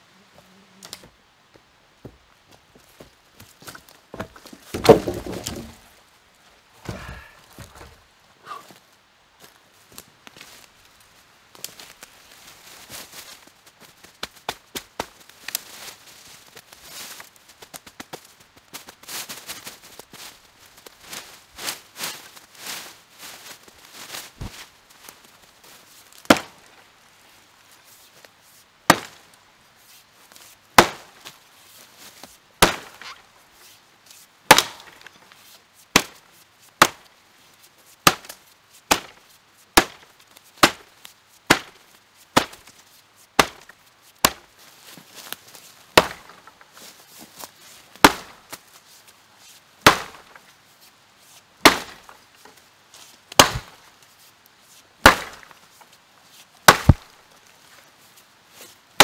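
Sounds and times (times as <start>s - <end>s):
axe chopping into wood: 4.2s - 5.8s, 32.6s - 33.1s, 34.5s - 34.9s, 41.5s - 41.7s, 43.4s - 43.6s, 44.2s - 44.4s, 46.0s - 46.4s, 48.0s - 48.3s, 49.8s - 50.3s, 51.6s - 52.1s, 53.4s - 53.8s, 55.0s - 55.4s, 56.7s - 57.1s.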